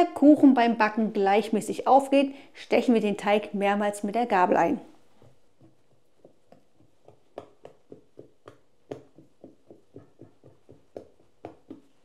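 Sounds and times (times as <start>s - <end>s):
fork tapping dough: 5.2s - 12.0s.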